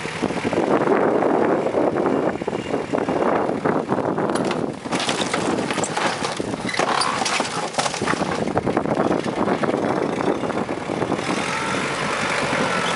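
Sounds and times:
diesel tractor running: 0.0 - 12.9
wood and metal sheets clattering: 4.3 - 8.8.

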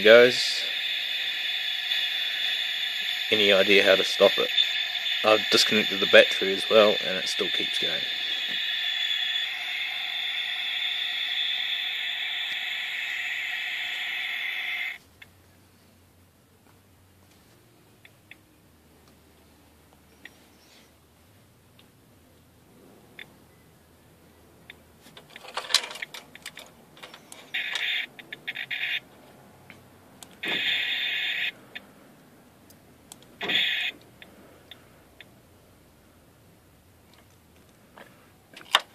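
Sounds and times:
car alarm siren hissing: 0.0 - 15.0, 27.1 - 29.1, 30.4 - 31.8, 33.4 - 34.0.

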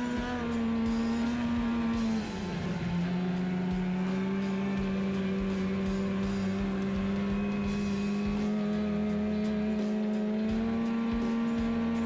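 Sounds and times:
snowmobile engine running: 0.0 - 12.0.

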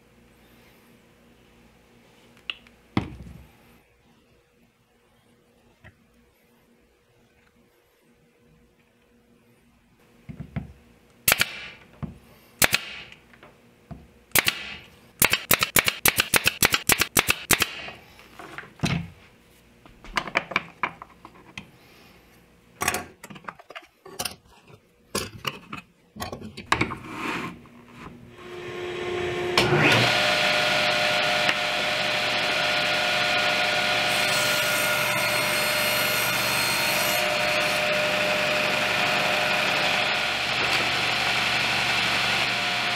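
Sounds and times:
table saw running: 28.3 - 42.9.

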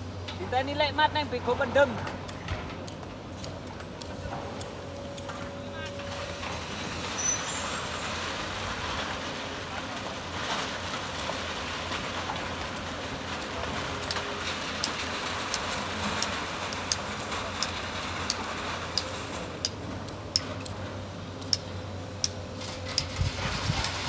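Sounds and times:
excavator diesel engine running: 3.2 - 24.0.

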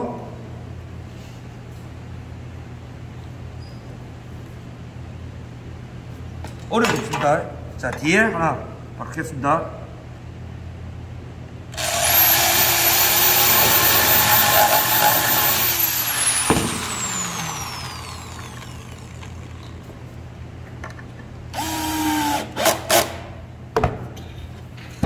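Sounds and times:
cordless drill running: 11.8 - 19.8, 21.6 - 22.8
electric drill boring into wood: 11.8 - 19.8, 21.6 - 22.8.

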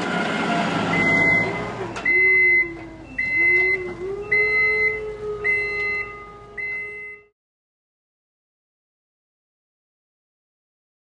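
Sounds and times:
forklift reversing alarm beeping: 0.2 - 7.3.

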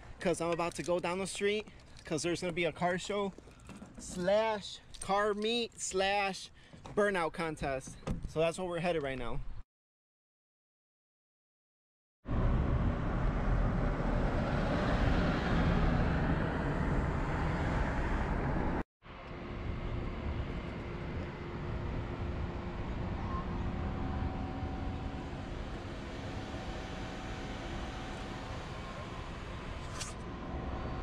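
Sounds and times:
outdoor hum of vehicles: 12.2 - 31.0
car cabin road and engine noise: 12.3 - 31.0.

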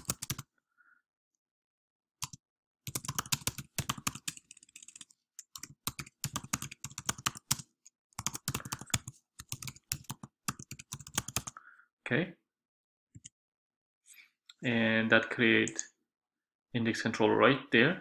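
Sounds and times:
computer keyboard typing: 0.0 - 0.4, 2.2 - 11.6.

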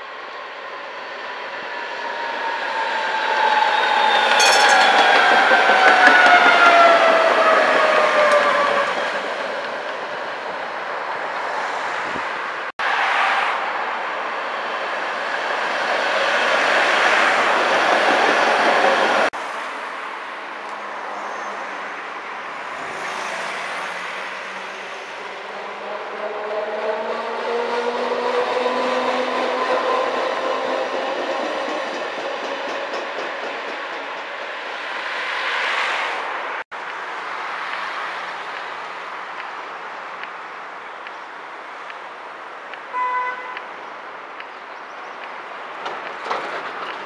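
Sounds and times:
trams rolling rumble: 1.2 - 12.5, 14.0 - 35.6, 43.6 - 47.0.

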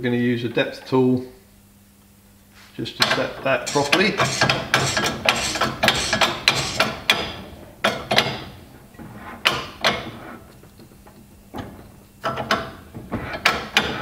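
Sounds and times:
hand pump metallic clacks: 3.0 - 14.0
knocks: 3.0 - 14.0.

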